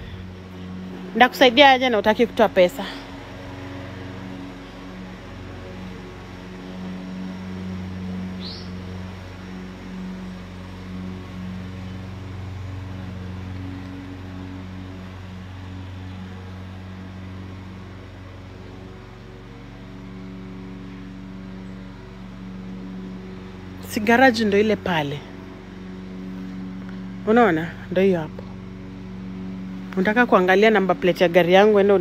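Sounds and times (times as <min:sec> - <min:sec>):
engine humming: 0:00.0 - 0:32.0
high rising chirp: 0:03.0 - 0:10.2.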